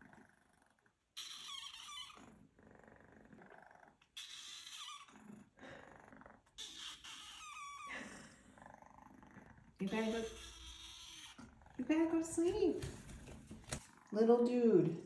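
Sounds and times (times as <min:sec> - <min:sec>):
kitten meowing: 0:09.8 - 0:11.5.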